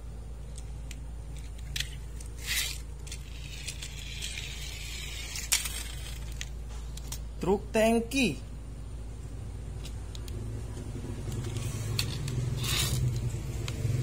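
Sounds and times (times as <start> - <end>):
toy clacking onto concrete: 0.4 - 7.3, 11.2 - 14.0
plastic toy wheels rasping on tile: 1.4 - 6.5, 11.3 - 13.4.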